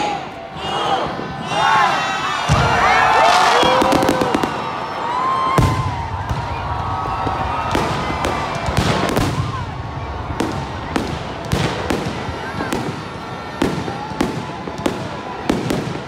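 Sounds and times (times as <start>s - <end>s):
fireworks bangs: 2.4s - 16.0s
fireworks crackle and hiss: 5.6s - 16.0s.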